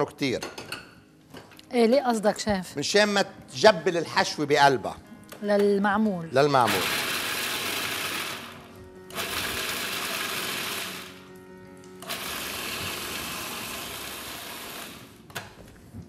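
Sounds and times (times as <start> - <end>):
food processor chopping nuts: 6.7 - 11.2, 12.0 - 15.2.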